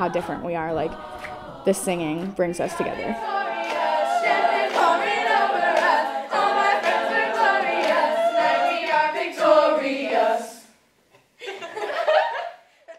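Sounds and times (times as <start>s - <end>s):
women singing in harmony: 0.0s - 10.8s.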